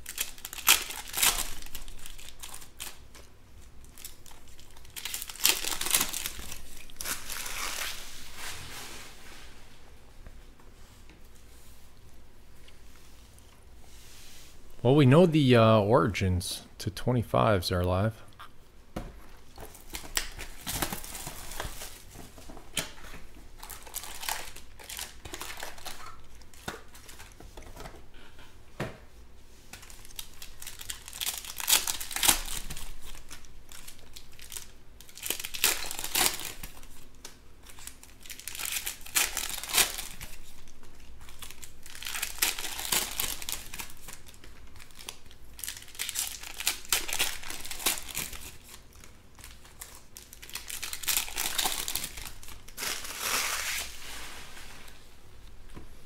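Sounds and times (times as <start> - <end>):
foil wrappers torn and crinkled: 0.0 - 8.2, 19.5 - 22.1, 23.6 - 27.4, 29.8 - 54.2.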